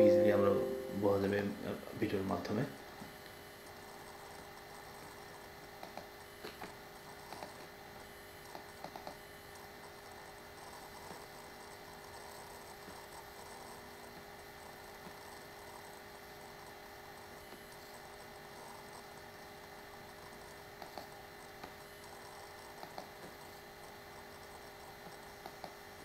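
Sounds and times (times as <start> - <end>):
faint electrical hum: 0.0 - 26.0
computer mouse clicks: 4.4 - 7.7, 8.4 - 14.3, 20.1 - 25.8.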